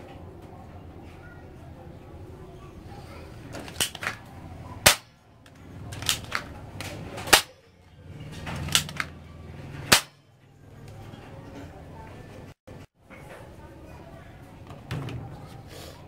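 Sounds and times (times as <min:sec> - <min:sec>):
light gun clicks: 0:03.7 - 0:04.2, 0:05.9 - 0:07.5, 0:08.7 - 0:09.2
gunshots: 0:04.8 - 0:05.2, 0:05.9 - 0:06.5, 0:07.3 - 0:07.6, 0:08.6 - 0:09.1, 0:09.9 - 0:10.2.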